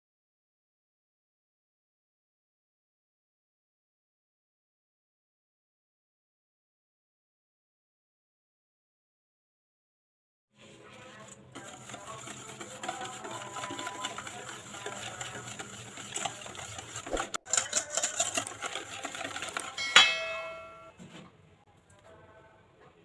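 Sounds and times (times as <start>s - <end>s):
whisk clicking against metal bowl: 11.2s - 20.9s
metal bowl ringing: 19.5s - 21.0s.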